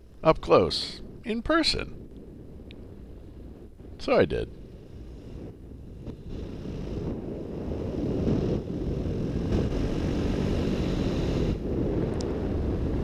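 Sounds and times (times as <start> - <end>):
wind rush on microphone: 0.0 - 13.0
paramotor engine and propeller: 4.6 - 13.0.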